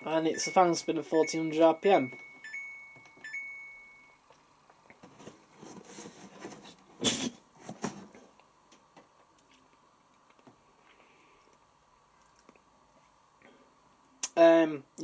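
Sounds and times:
washing machine beeping: 0.0s - 4.2s.

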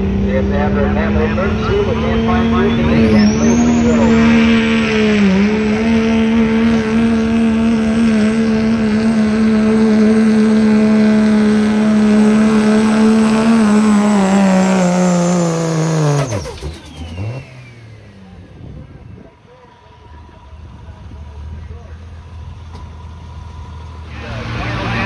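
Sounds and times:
loud engine drone: 0.0s - 25.0s
high turbo whistle: 1.8s - 5.2s.

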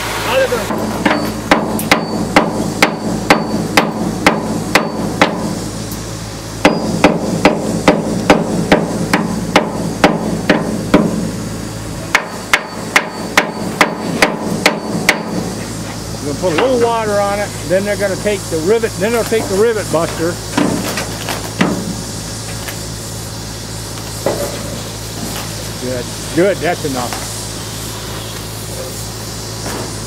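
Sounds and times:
steady low hum: 0.0s - 30.0s
hammer striking metal: 0.7s - 5.6s, 6.6s - 11.2s, 12.1s - 15.5s.

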